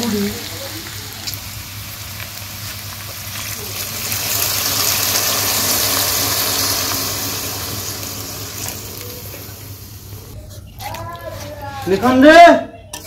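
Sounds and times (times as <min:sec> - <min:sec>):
water pouring into a hot pan: 0:00.0 - 0:10.3.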